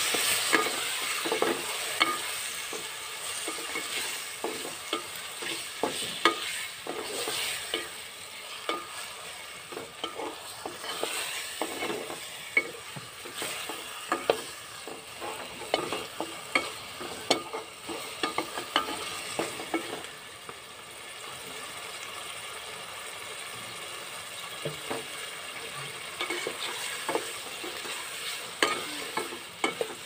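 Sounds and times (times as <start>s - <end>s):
wooden spatula scraping a pot: 0.0s - 20.1s, 26.2s - 30.0s
tomatoes sizzling in hot oil: 0.0s - 30.0s.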